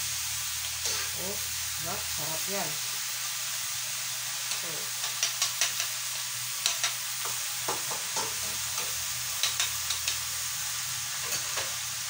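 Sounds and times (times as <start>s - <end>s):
vegetables sizzling in a wok: 0.0s - 12.0s
spatula knocking against pan: 6.6s - 10.2s.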